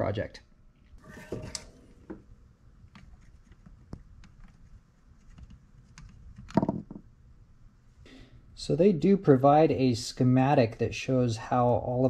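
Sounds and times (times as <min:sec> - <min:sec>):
knock: 0:06.5 - 0:07.0.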